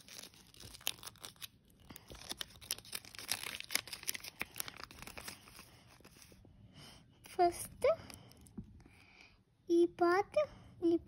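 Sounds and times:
paper crackling and rustling: 0.0s - 6.4s.

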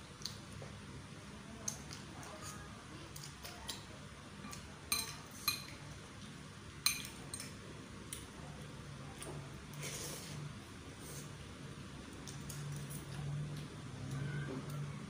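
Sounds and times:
cutlery clinking on ceramic bowl: 4.4s - 5.7s
slurping noodles: 9.8s - 10.4s.

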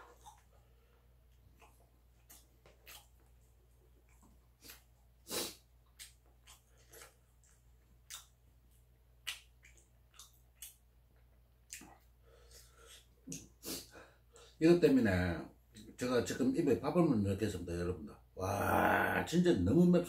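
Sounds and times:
chewing and lip smacks: 0.0s - 13.6s.

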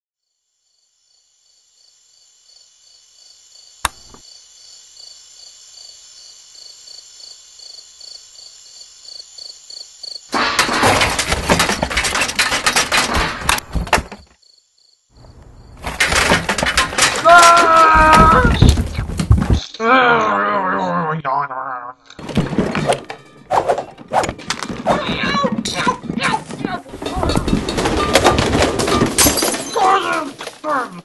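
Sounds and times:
crickets chirping: 0.2s - 10.6s, 13.8s - 17.2s
sharp click: 3.8s - 4.2s.

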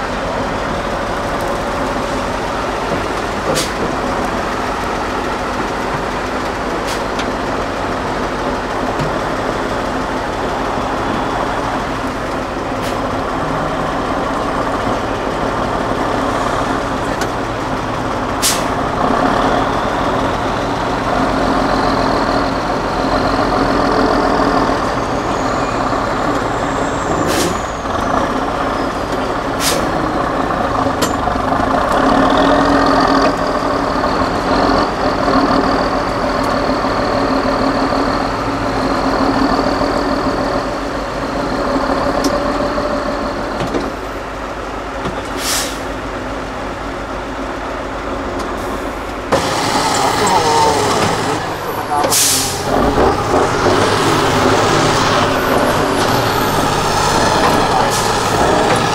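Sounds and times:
truck diesel engine under load: 0.0s - 58.9s
air brake hisses: 18.4s - 18.8s, 27.2s - 27.7s, 29.6s - 29.9s, 45.3s - 45.9s, 52.1s - 52.7s.

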